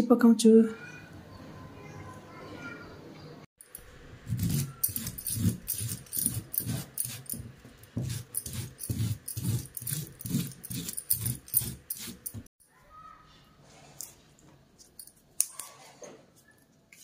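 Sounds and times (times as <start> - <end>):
knife scraping vegetable skin: 4.3 - 12.5.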